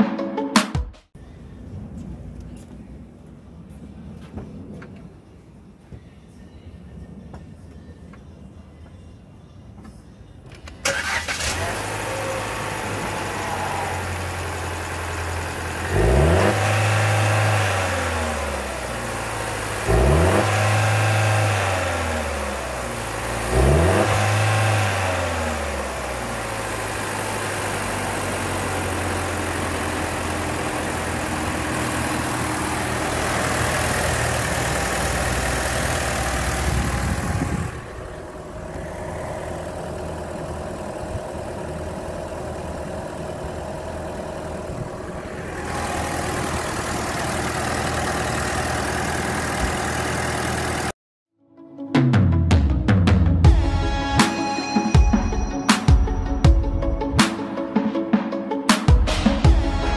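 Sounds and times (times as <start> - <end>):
car engine idling and revving: 6.9 - 51.0.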